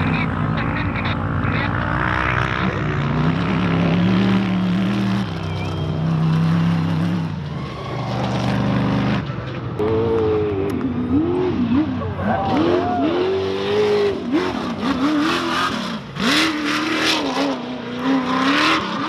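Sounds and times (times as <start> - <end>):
engine revving: 0.0 - 19.0
race buggy engine running hard: 0.0 - 19.0.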